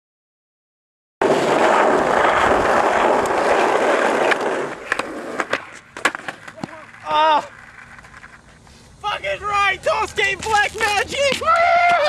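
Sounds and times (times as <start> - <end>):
skateboard clacks: 1.2 - 8.5
skateboard wheels rolling on concrete: 1.2 - 12.0.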